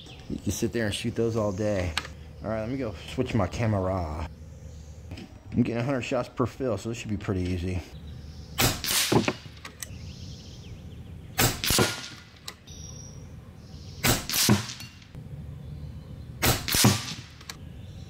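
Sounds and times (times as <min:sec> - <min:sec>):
air rifle shots: 0:08.6 - 0:09.6, 0:11.4 - 0:12.4, 0:14.0 - 0:15.2, 0:16.4 - 0:17.5
pellet striking metal target: 0:14.0 - 0:15.1, 0:16.4 - 0:17.4.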